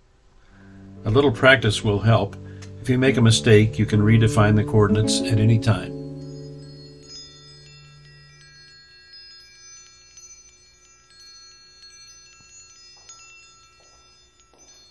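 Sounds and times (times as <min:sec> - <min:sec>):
low tone: 0:00.5 - 0:08.9
high bell-like chimes: 0:00.6 - 0:14.9.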